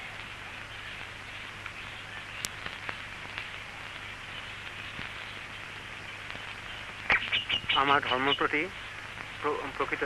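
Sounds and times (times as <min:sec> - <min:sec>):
background hiss: 0:00.0 - 0:10.0
clicks and crackles: 0:00.2 - 0:07.8.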